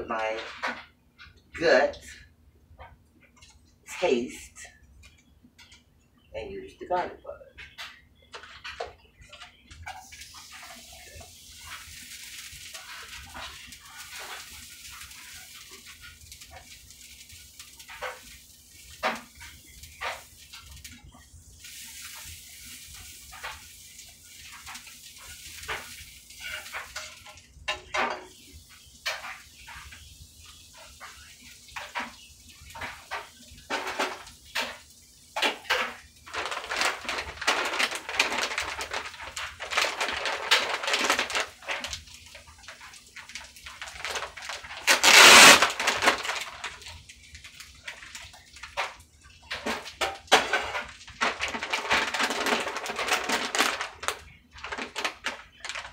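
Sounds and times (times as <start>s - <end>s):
plastic bag crinkling: 7.6s - 21.0s, 30.5s - 55.9s
scraping and stirring: 7.6s - 55.9s.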